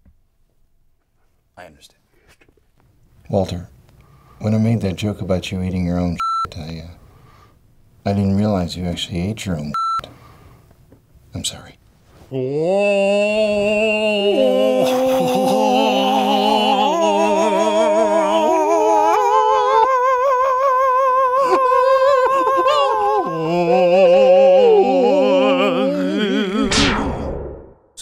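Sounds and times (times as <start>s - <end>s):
two men singing unaccompanied: 12.3s - 26.6s.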